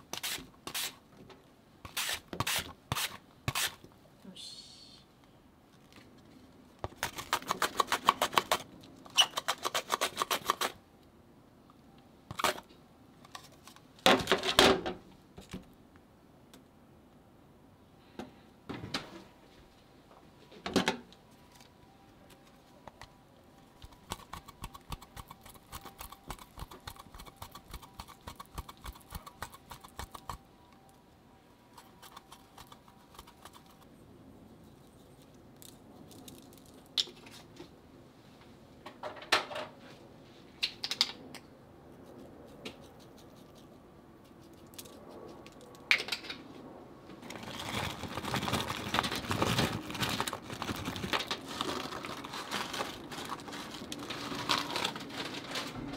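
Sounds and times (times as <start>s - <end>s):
faint steady hum: 10.7s - 14.0s, 14.8s - 39.0s.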